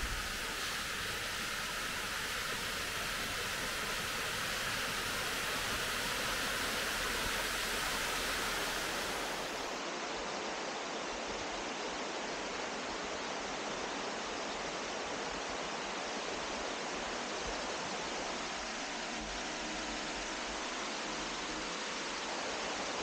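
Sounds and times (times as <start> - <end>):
stream rushing over rocks: 0.0 - 10.7.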